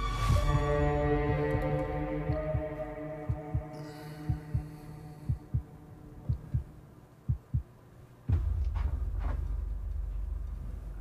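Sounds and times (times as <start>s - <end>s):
steady low rumble: 0.0s - 11.0s
heartbeat thumps: 0.3s - 6.7s, 7.3s - 7.7s, 8.3s - 11.0s
deep boom: 8.3s - 11.0s.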